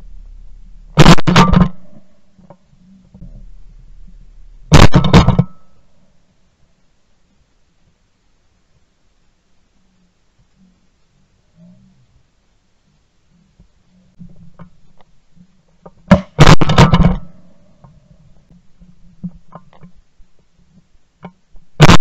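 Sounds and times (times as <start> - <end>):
low rumble: 0.0 - 6.2
shotgun blast: 1.0 - 2.0, 4.7 - 5.7, 16.1 - 17.3.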